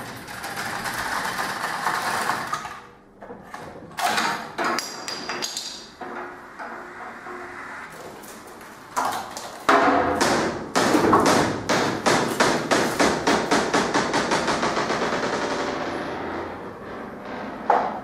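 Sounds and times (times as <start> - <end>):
sharp knocks and clicks: 9.2 - 16.0, 17.2 - 18.0.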